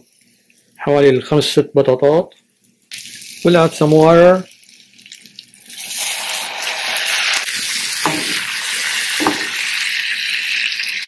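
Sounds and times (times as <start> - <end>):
water sizzling in hot skillet: 2.9 - 11.0.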